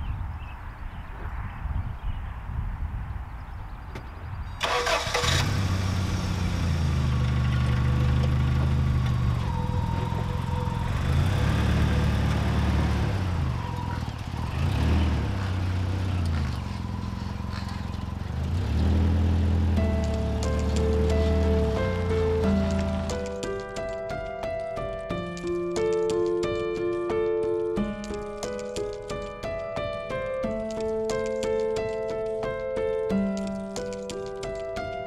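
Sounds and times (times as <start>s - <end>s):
engine starter cranking: 4.6s - 6.6s
van engine running and revving: 4.6s - 34.7s.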